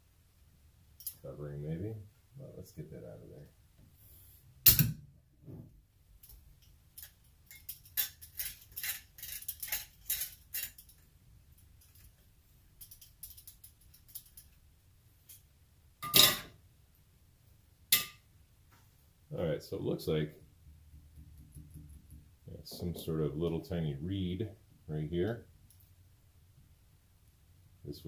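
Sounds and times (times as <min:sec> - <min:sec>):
small metal clicks and clinks: 0:01.0 - 0:01.2, 0:06.2 - 0:12.2, 0:12.8 - 0:14.6.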